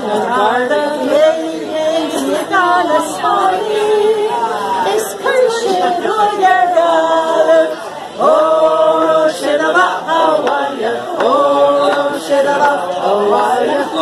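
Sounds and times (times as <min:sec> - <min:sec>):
voices singing: 0:00.0 - 0:14.0.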